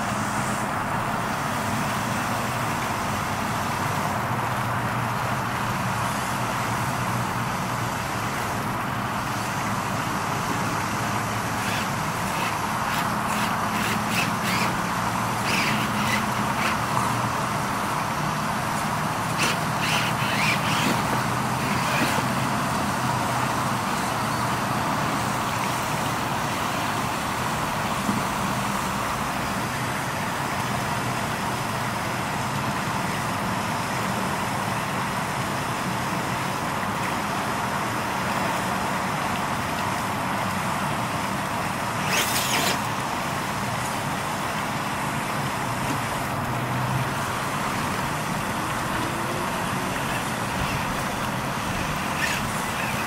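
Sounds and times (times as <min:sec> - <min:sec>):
electric motor and drivetrain running: 0:10.5 - 0:22.9, 0:42.0 - 0:43.0, 0:48.4 - 0:53.0.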